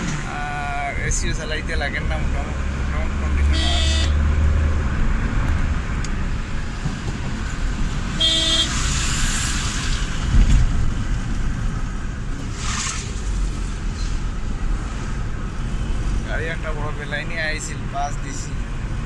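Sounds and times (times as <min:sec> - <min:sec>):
car horn tooting: 0:03.4 - 0:04.2, 0:08.1 - 0:08.8.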